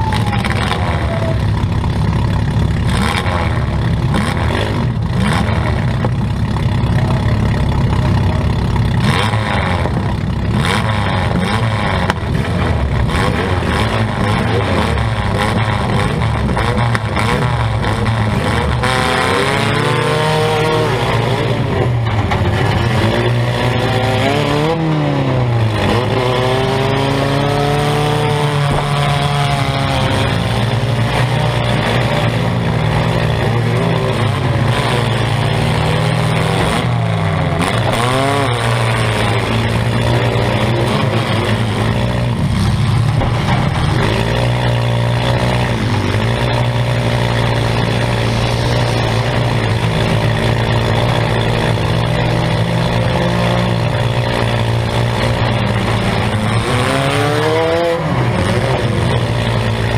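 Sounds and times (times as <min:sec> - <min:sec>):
car engine revving: 0:00.0 - 0:59.9.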